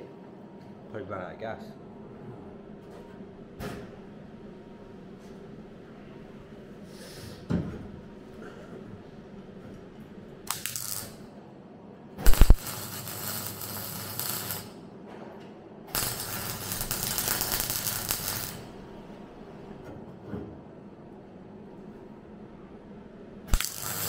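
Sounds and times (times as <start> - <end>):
welder arc crackling and hissing: 10.5 - 11.2, 12.2 - 14.8, 15.9 - 18.8, 23.5 - 24.0.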